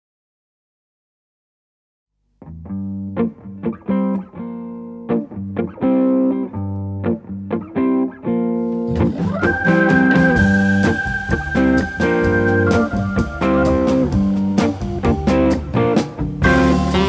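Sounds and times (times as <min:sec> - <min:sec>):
electric guitar playing chords: 0:02.4 - 0:17.0
cymbals: 0:09.0 - 0:15.6, 0:16.4 - 0:17.0
organ chord: 0:09.4 - 0:15.6, 0:16.4 - 0:17.0.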